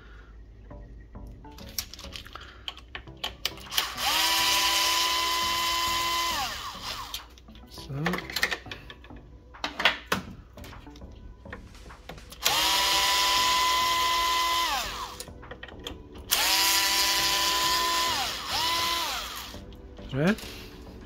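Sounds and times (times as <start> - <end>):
cordless drill motor whining: 3.7 - 7.3, 12.4 - 15.2, 16.3 - 19.6.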